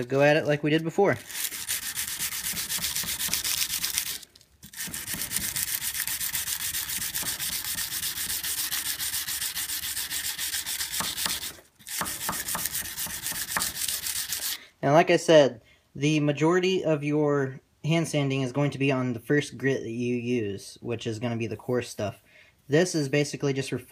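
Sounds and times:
sandpaper scratching on steel blade: 0:00.6 - 0:14.6.

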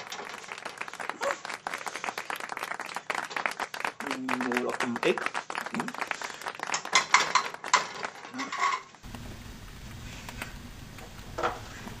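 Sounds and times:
cookware clattering: 0:07.0 - 0:09.0
steady low hum: 0:09.0 - 0:12.0.

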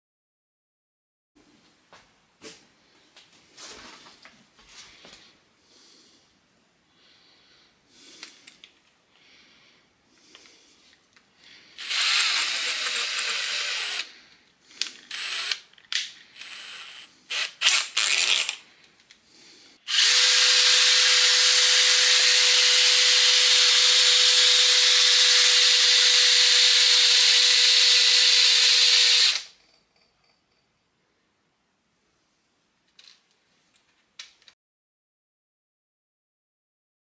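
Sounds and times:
cordless drill spinning: 0:11.8 - 0:14.2, 0:14.8 - 0:18.6, 0:19.9 - 0:29.6.

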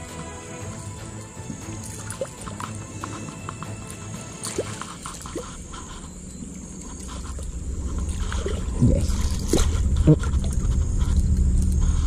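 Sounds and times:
low rumble: 0:01.5 - 0:12.0
fish splashing in water: 0:04.0 - 0:10.8.

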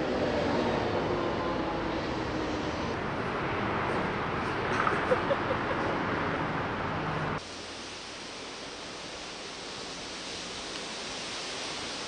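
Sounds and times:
steady background hiss: 0:06.4 - 0:12.0.

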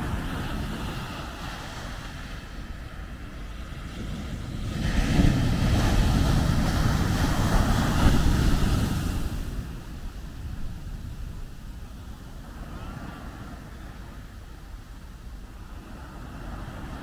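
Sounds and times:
wave breaking: 0:00.0 - 0:10.3.

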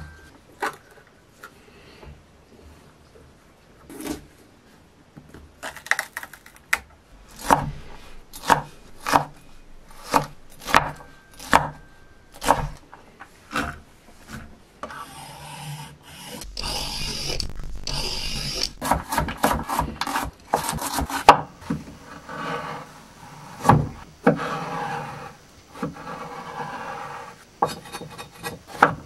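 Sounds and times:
knife scraping across board: 0:07.3 - 0:16.5, 0:18.8 - 0:28.9
knife chopping on cutting board: 0:08.4 - 0:09.3, 0:10.0 - 0:11.8, 0:12.4 - 0:12.8.

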